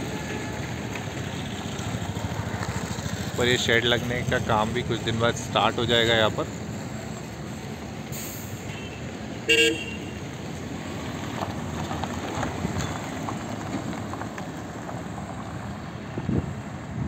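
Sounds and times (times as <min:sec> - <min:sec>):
road traffic noise: 0:00.0 - 0:17.0
vehicle horn honk: 0:08.7 - 0:10.2.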